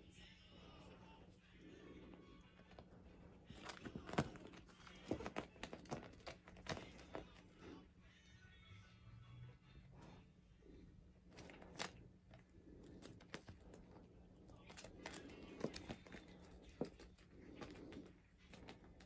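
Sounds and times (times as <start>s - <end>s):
cat scratching plush toy: 0.6s - 8.0s, 9.9s - 19.0s.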